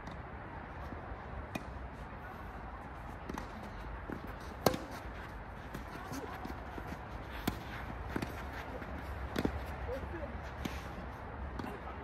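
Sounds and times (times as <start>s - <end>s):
racket hitting ball: 4.6s - 5.0s.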